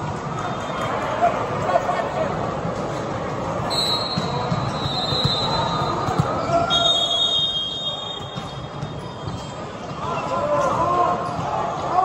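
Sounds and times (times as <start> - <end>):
crowd chatter: 0.0 - 12.0
sneaker squeaks on court: 3.7 - 11.5.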